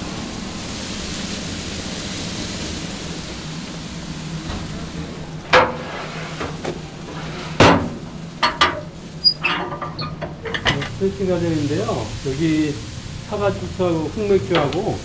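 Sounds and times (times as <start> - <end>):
steady hum: 0.0 - 15.0
utensils and containers clinking: 5.4 - 11.1.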